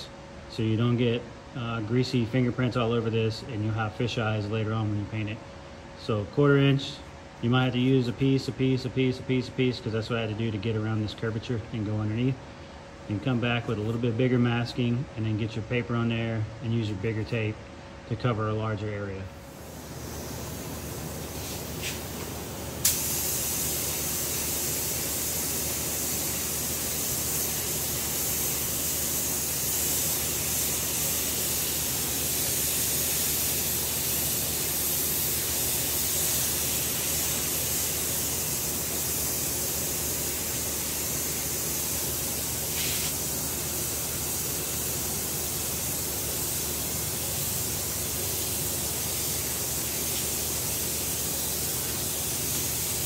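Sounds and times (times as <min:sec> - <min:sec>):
spray gun hissing: 0:19.4 - 0:53.0.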